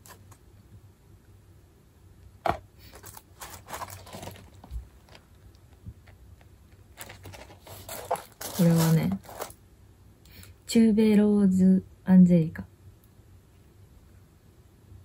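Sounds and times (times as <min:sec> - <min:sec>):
packaging rustling and tapping: 0:02.4 - 0:09.6.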